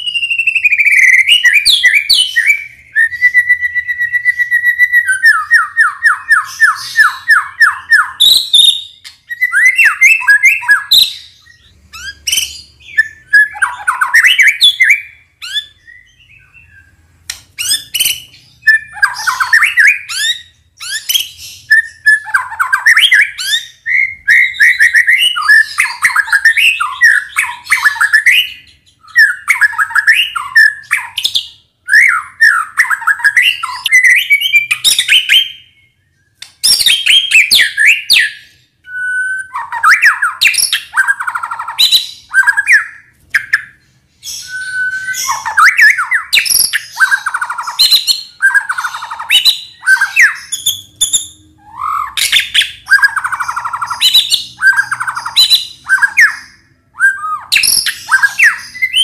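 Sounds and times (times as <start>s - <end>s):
bird singing loudly: 0.0s - 59.0s.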